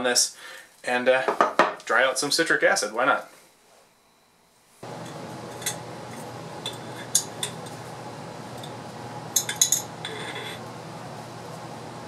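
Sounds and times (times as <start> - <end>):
metal spatula clinking on glass: 9.4 - 10.6.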